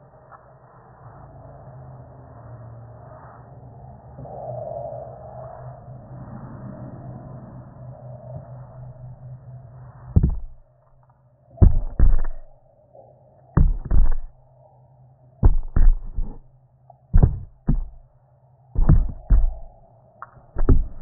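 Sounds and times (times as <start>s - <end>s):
faint steady hum: 0.0s - 21.0s
phone microphone handling thumps: 10.2s - 10.6s, 11.6s - 12.5s, 13.6s - 14.3s, 15.4s - 16.4s, 17.2s - 18.0s, 18.8s - 19.7s, 20.6s - 21.0s
rubbing on microphone: 10.2s - 10.6s, 11.6s - 12.5s, 13.6s - 14.3s, 15.4s - 16.4s, 17.2s - 18.0s, 18.8s - 19.7s, 20.6s - 21.0s.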